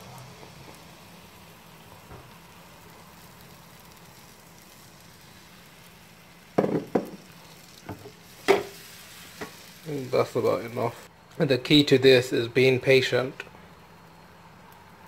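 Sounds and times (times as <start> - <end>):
batter sizzling in frying pan: 0.0 - 15.0.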